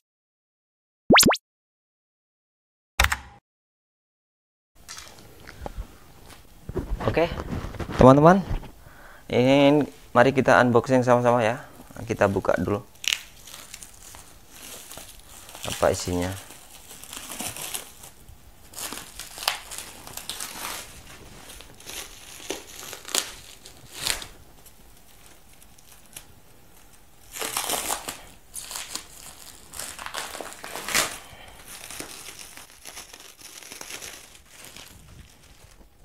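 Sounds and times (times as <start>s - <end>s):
plastic wrapping crinkling: 12.1s - 36.0s.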